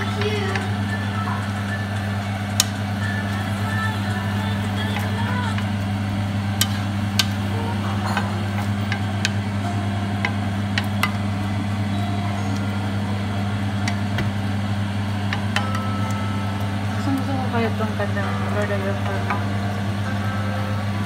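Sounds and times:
steady low hum: 0:00.0 - 0:21.0
spatula stirring in frying pan: 0:03.4 - 0:11.4.

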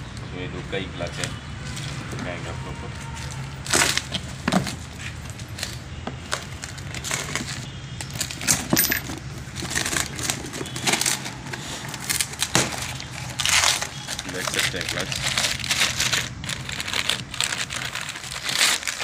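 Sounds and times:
cardboard box tearing: 0:09.6 - 0:19.0.

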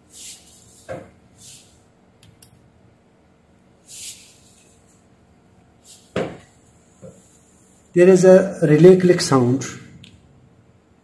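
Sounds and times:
short breathy hisses: 0:01.4 - 0:01.8, 0:03.8 - 0:04.6.

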